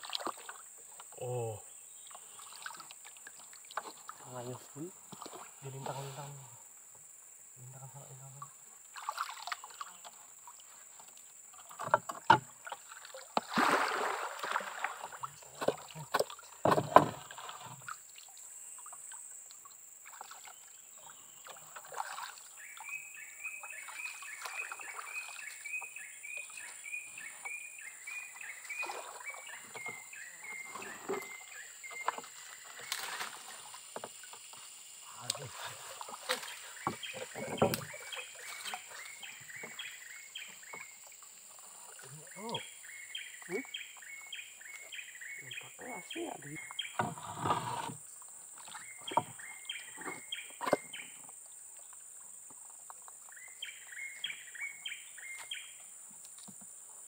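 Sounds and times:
water splashes: 0:00.0 - 0:06.5, 0:07.6 - 0:56.6
knocks and bumps on boat: 0:15.6 - 0:17.4.

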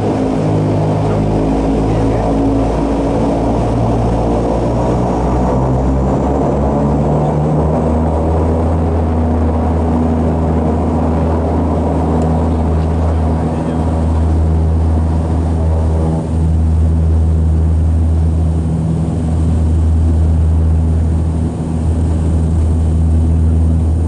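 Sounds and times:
turboprop engines humming: 0:00.0 - 0:24.0.

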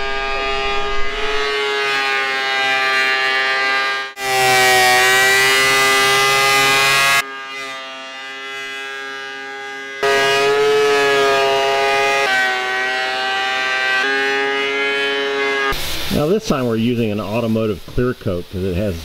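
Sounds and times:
planer rushing noise: 0:00.0 - 0:17.6
thickness planer whine: 0:00.0 - 0:17.8.

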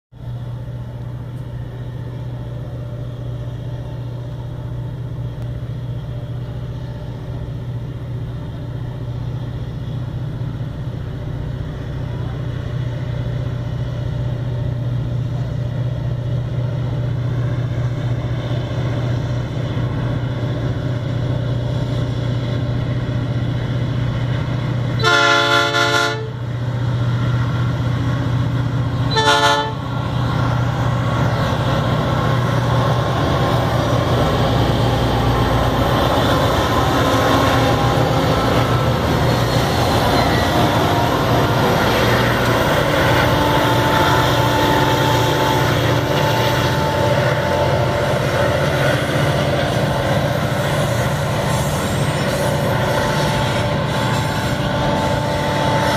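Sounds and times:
locomotive engines droning: 0:00.1 - 0:55.9
train chime horn: 0:25.0 - 0:26.4, 0:29.1 - 0:29.9, 0:42.6 - 0:48.4.

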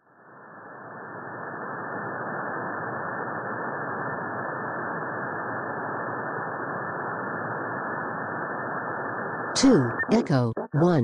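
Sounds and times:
radio band noise hiss: 0:00.0 - 0:11.0.

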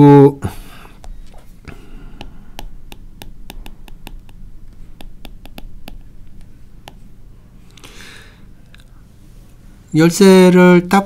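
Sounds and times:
low steady hum: 0:00.0 - 0:11.0
stylus clicking on a tablet screen: 0:02.2 - 0:07.0.

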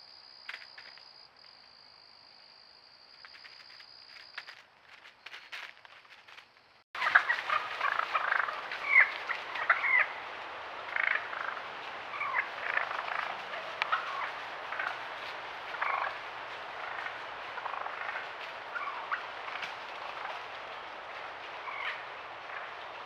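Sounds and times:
wild turkeys calling: 0:07.0 - 0:23.0.

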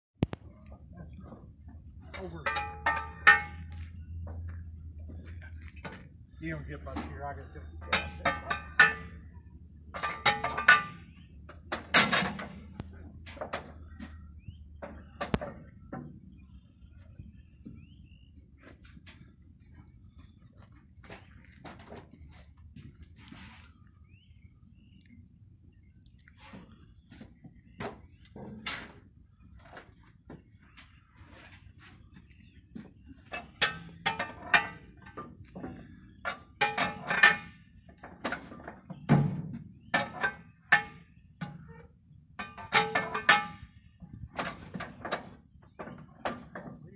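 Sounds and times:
tractor controls clunking: 0:01.2 - 0:16.6, 0:32.2 - 0:46.9
metallic clanks and clinks: 0:02.0 - 0:04.5, 0:06.9 - 0:13.8, 0:33.3 - 0:37.6, 0:38.3 - 0:46.8.

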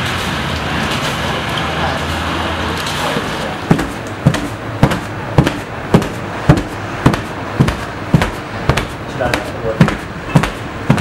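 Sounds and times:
knife chopping on cutting board: 0:03.7 - 0:11.0.

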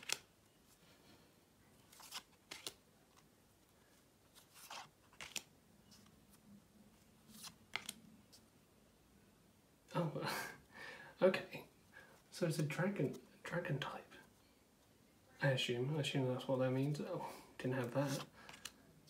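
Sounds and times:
cards snapping off a stack: 0:00.0 - 0:00.3, 0:02.0 - 0:02.8, 0:05.1 - 0:05.5, 0:07.4 - 0:08.0.

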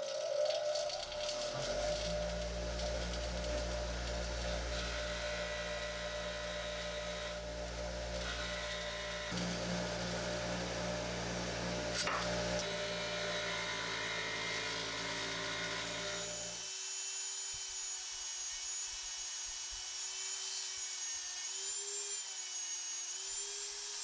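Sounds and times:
bench grinder grinding steel: 0:00.0 - 0:16.6
rotary tool high whine: 0:00.0 - 0:24.0.

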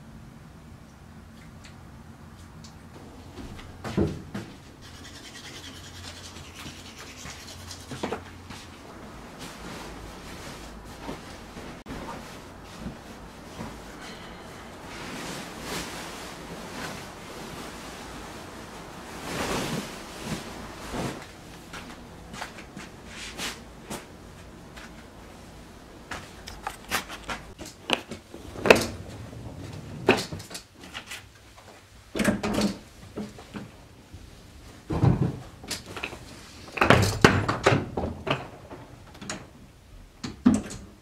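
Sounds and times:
duvet and pillows rustling: 0:07.9 - 0:32.1.

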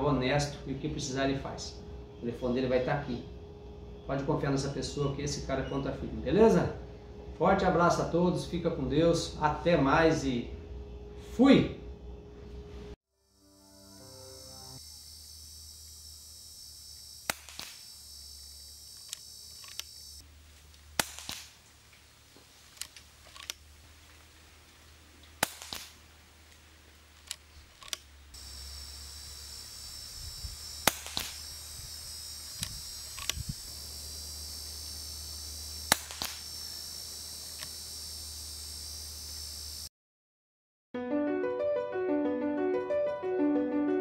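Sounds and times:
air rifle shots cracking: 0:17.3 - 0:17.8, 0:21.0 - 0:21.6, 0:25.4 - 0:26.0, 0:30.8 - 0:31.5, 0:35.9 - 0:36.5.

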